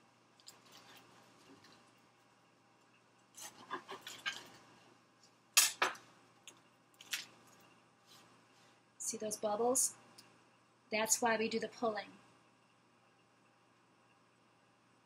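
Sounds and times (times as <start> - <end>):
bread cracking apart: 6.5 - 7.6
crusty bread crackling: 7.0 - 7.7.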